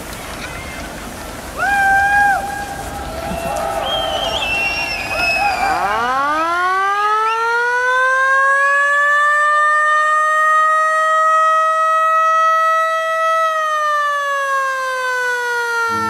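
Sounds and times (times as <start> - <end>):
siren wailing: 2.3 - 16.0.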